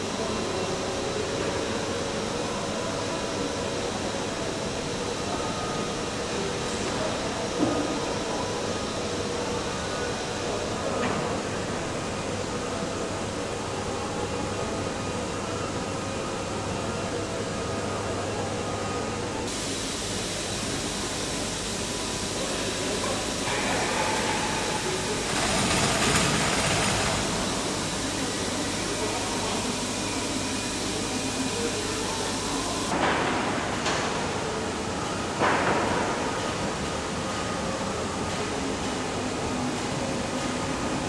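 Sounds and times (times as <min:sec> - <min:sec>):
machinery hum: 0:00.0 - 0:41.0
loud hiss: 0:19.5 - 0:32.9
faint voices: 0:20.1 - 0:35.4.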